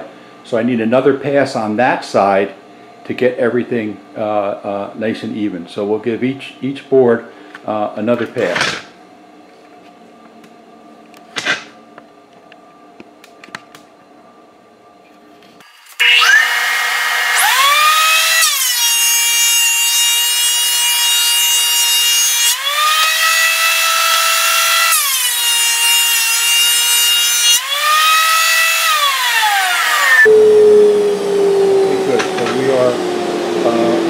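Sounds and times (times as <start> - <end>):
thickness planer motor whine: 15.9 - 34.0
boards fed through planer: 16.0 - 30.3, 31.1 - 34.0.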